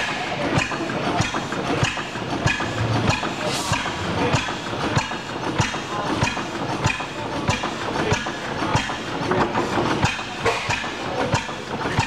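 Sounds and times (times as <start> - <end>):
stationary engines clattering: 0.0 - 12.0
engine firing beat: 0.5 - 8.1.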